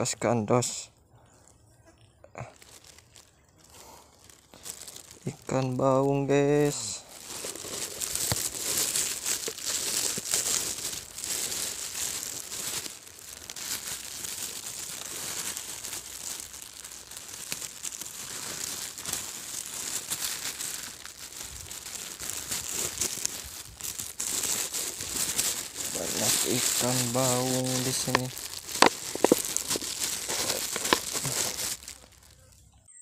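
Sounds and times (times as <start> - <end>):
footsteps through rustling grass: 2.0 - 32.6.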